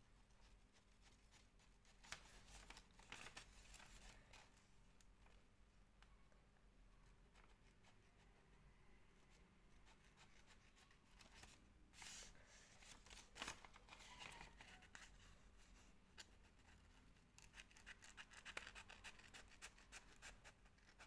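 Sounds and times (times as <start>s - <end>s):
scissors cutting paper: 17.4s - 21.0s.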